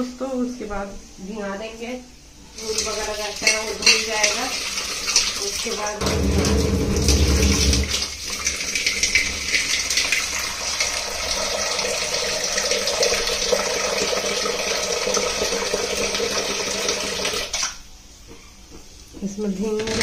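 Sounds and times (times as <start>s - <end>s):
water running into a bowl: 2.5s - 17.8s.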